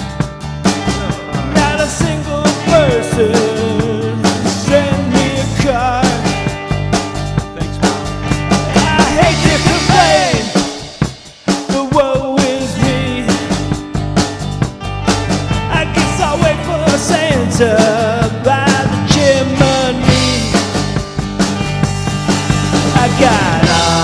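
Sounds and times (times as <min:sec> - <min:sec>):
drum kit beat: 0:00.0 - 0:24.0
rock band music: 0:00.0 - 0:24.0.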